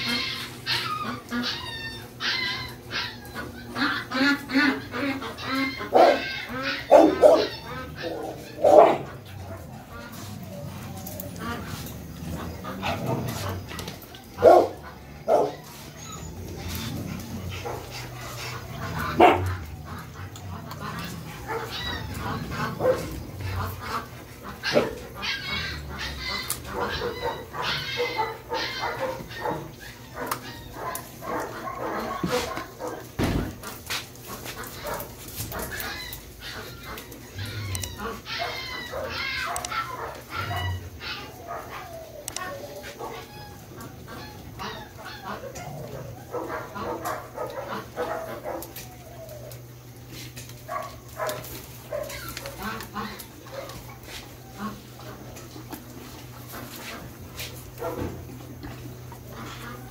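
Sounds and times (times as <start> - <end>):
dogs whining yelping and barking: 0.0 - 59.9
low steady hum: 0.0 - 59.9
dog barking: 5.9 - 6.3, 6.9 - 9.8, 14.4 - 15.6, 19.1 - 19.6, 22.7 - 23.2, 24.6 - 25.0, 26.7 - 33.1, 38.3 - 40.8, 45.3 - 48.8, 50.6 - 52.8, 57.8 - 58.2.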